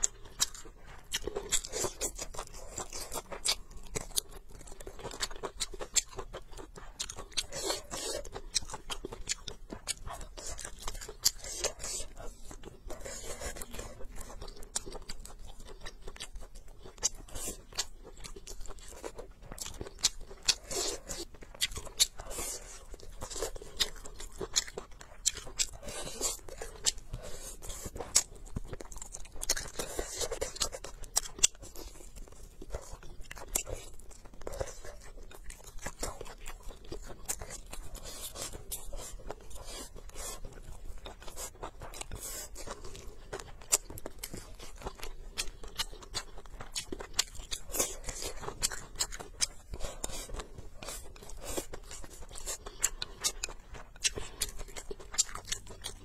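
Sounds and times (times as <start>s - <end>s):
person chewing and crunching food: 0.0s - 56.0s.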